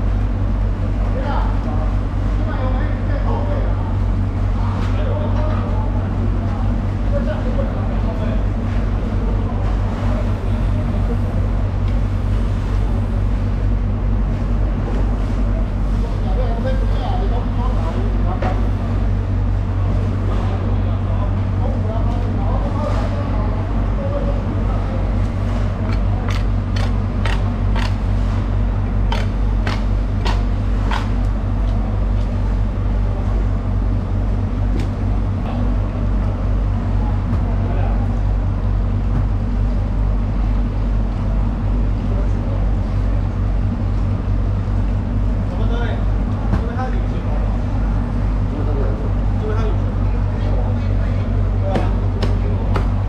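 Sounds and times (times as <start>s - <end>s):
machinery rumble and hum: 0.0s - 53.0s
knife scraping bones on wood: 25.9s - 28.0s, 29.1s - 31.1s.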